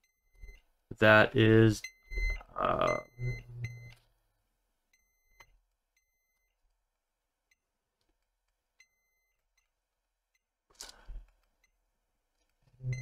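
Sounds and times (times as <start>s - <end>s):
multimeter beeps: 1.8s - 4.0s, 4.9s - 6.6s, 8.8s - 9.7s, 12.8s - 13.0s.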